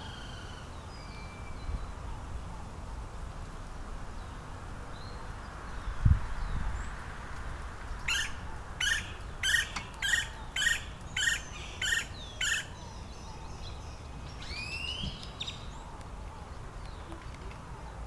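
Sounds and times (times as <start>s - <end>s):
woodpecker harsh calls: 8.0s - 13.1s.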